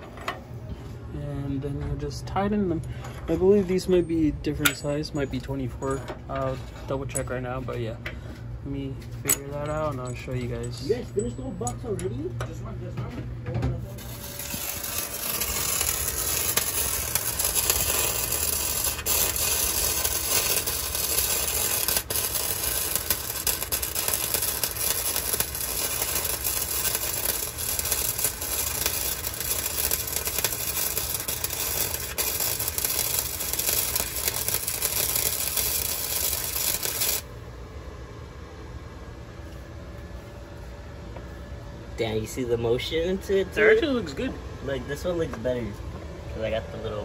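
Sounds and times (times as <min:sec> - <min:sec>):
welding arc crackling sizzle: 0:13.8 - 0:37.3.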